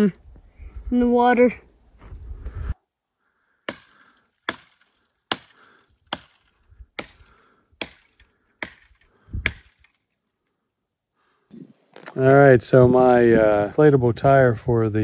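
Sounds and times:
hand tool chopping wood: 0:03.7 - 0:10.0.

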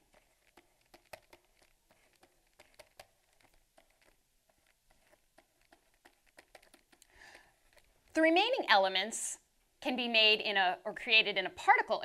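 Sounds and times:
stylus tapping on pen tablet: 0:00.2 - 0:07.1.

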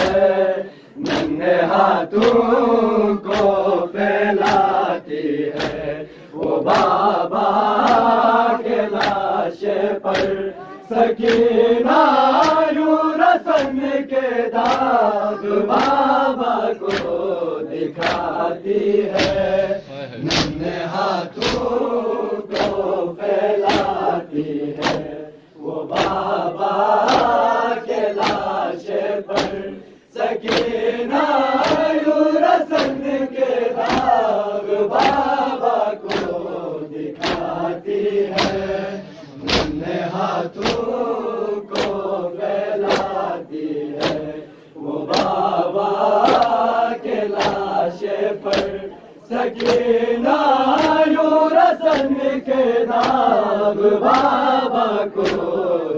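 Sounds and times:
men chanting together: 0:00.0 - 0:55.9
hand slaps on chest: 0:01.0 - 0:02.6, 0:03.2 - 0:03.7, 0:04.3 - 0:08.2, 0:08.9 - 0:09.3, 0:10.0 - 0:10.5, 0:11.1 - 0:12.8, 0:13.4 - 0:17.3, 0:18.0 - 0:18.4, 0:19.0 - 0:19.6, 0:20.2 - 0:20.6, 0:21.4 - 0:23.0, 0:23.6 - 0:24.1, 0:24.7 - 0:25.2, 0:25.8 - 0:27.5, 0:28.1 - 0:28.7, 0:29.3 - 0:29.8, 0:30.4 - 0:30.8, 0:31.5 - 0:32.0, 0:32.6 - 0:33.1, 0:33.8 - 0:36.4, 0:37.2 - 0:37.6, 0:38.3 - 0:38.8, 0:39.4 - 0:39.9, 0:40.5 - 0:42.0, 0:42.8 - 0:43.3, 0:43.9 - 0:44.4, 0:45.0 - 0:46.7, 0:47.3 - 0:47.8, 0:48.4 - 0:48.8, 0:49.6 - 0:49.9, 0:50.7 - 0:51.2, 0:51.8 - 0:52.3, 0:52.9 - 0:53.3, 0:54.0 - 0:54.5, 0:55.2 - 0:55.6.

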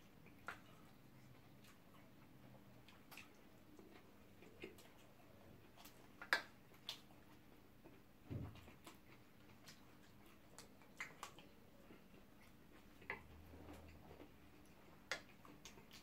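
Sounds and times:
chewing sounds: 0:00.0 - 0:16.0.

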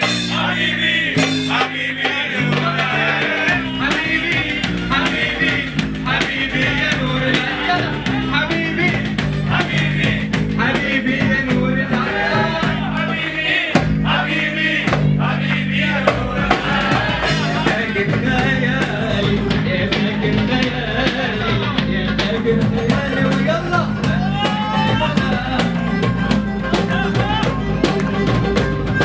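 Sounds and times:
man singing: 0:00.0 - 0:28.2
drum kit beats: 0:00.0 - 0:29.0.

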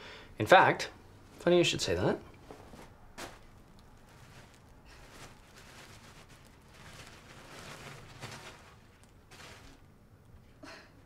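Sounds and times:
tissue paper rustling: 0:02.4 - 0:09.9.

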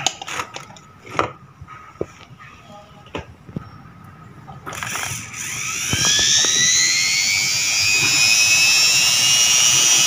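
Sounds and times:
motor whine: 0:04.7 - 0:10.0.

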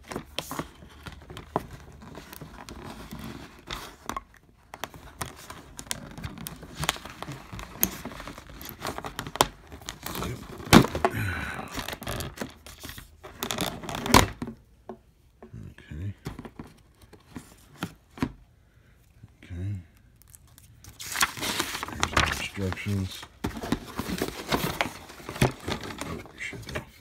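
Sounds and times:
packaging rustling and crinkling: 0:00.0 - 0:14.5, 0:20.2 - 0:27.0.

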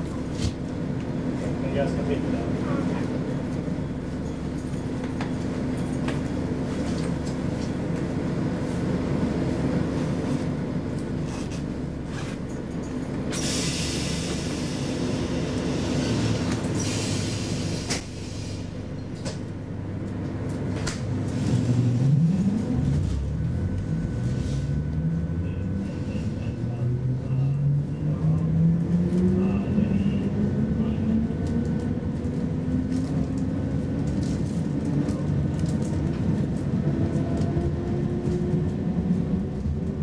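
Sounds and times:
onboard equipment hum: 0:18.8 - 0:33.9.

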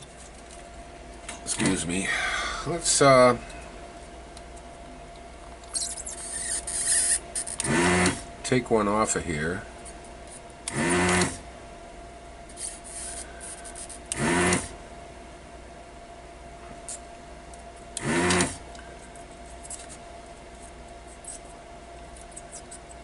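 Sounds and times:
desoldering vacuum pump bursts: 0:05.7 - 0:08.3, 0:10.6 - 0:11.4, 0:12.5 - 0:14.8, 0:18.0 - 0:18.7.

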